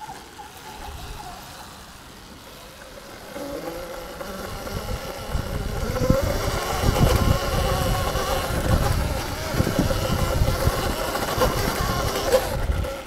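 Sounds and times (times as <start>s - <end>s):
electric motorbike motor whining: 0.0s - 13.0s.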